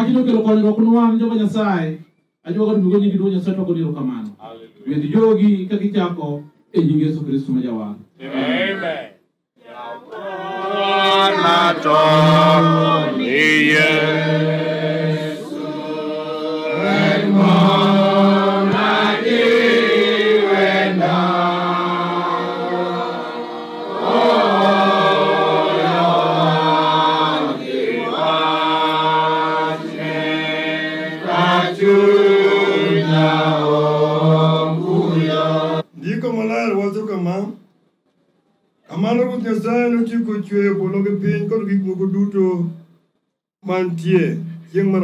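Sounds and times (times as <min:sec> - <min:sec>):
men chanting in unison: 0:08.2 - 0:23.0.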